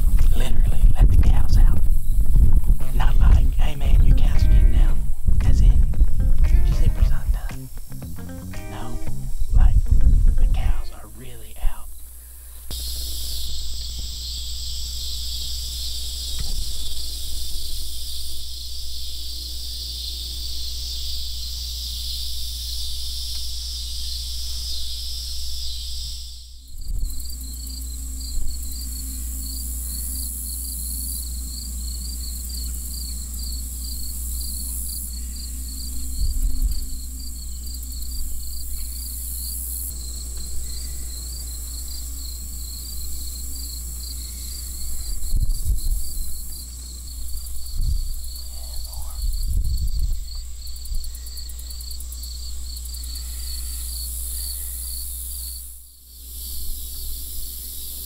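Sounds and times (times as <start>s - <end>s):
insects chirping: 0.0s - 58.0s
high thin drone: 2.8s - 11.9s.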